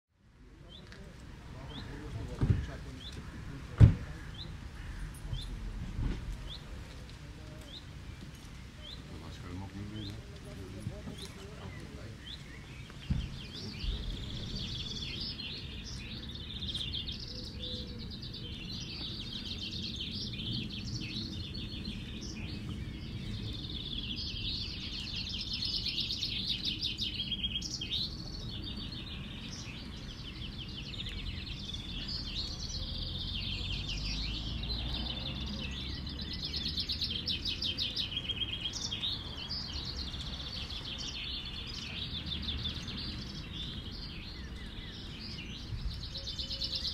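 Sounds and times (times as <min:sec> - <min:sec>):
thump: 0:02.4 - 0:02.7, 0:03.7 - 0:04.2, 0:05.8 - 0:06.3, 0:13.1 - 0:13.4
chaffinches singing trills: 0:06.3 - 0:46.9.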